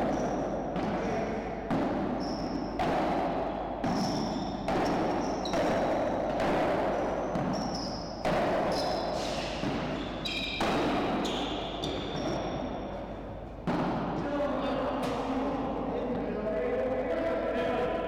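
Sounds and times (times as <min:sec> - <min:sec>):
ball hits echoing in hall: 0:00.0 - 0:18.0
shoes squeaking on court: 0:02.2 - 0:02.8, 0:03.8 - 0:06.0, 0:06.9 - 0:13.8.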